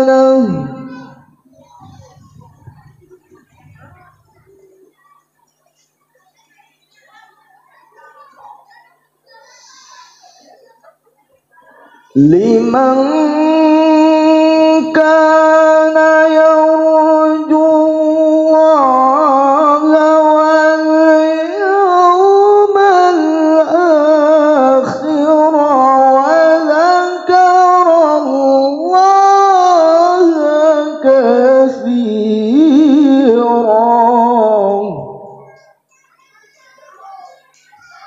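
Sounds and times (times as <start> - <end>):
man reciting melodically: 0.0 - 1.4, 12.2 - 35.6.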